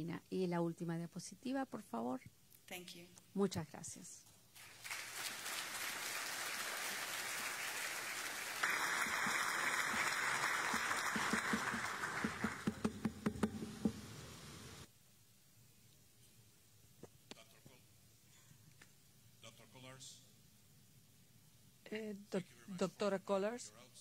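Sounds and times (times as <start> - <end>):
audience applause: 4.6 - 13.8.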